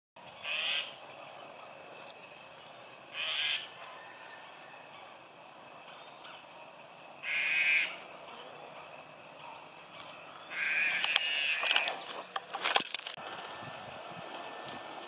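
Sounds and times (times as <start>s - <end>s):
starling harsh calls: 0.3s - 1.1s, 2.4s - 12.3s.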